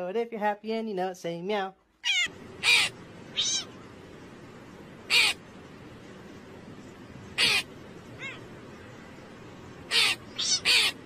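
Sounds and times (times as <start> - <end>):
meow-like calls: 2.0 - 3.8, 7.4 - 8.5, 9.9 - 11.0.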